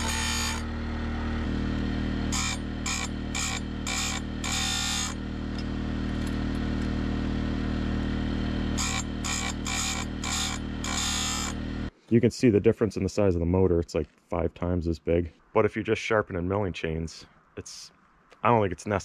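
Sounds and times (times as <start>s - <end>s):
grinding wheel on saw chain: 0.0s - 0.8s, 2.3s - 5.3s, 8.7s - 11.9s
grinder motor hum: 0.0s - 11.9s.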